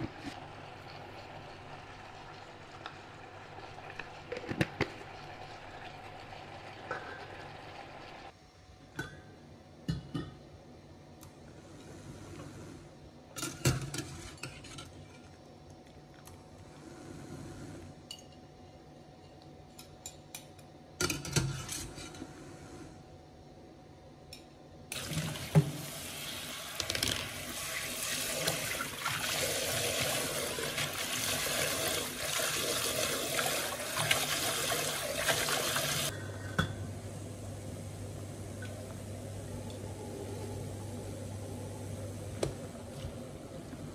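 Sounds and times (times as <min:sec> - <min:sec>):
tap water rushing into sink: 0:26.7 - 0:36.1.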